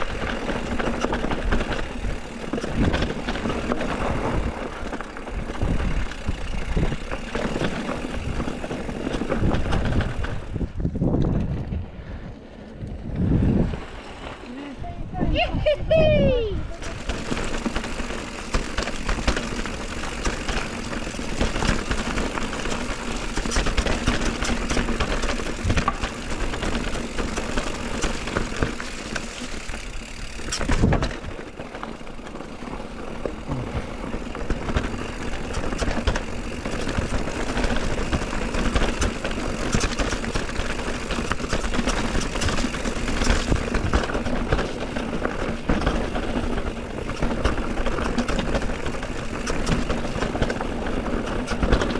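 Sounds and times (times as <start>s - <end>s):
bike clattering and knocking: 0.0s - 11.6s, 16.7s - 51.9s
bike tyres rumbling on rocky trail: 0.0s - 15.4s, 16.0s - 51.9s
wind on microphone: 9.2s - 14.0s, 14.7s - 17.1s.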